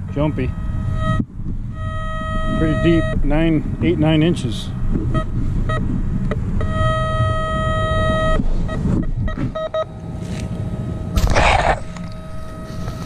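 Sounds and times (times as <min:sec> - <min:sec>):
metal detector beeps and tone: 0:00.0 - 0:03.4, 0:06.6 - 0:09.9, 0:12.0 - 0:13.0
loud scraping rush: 0:11.2 - 0:13.0.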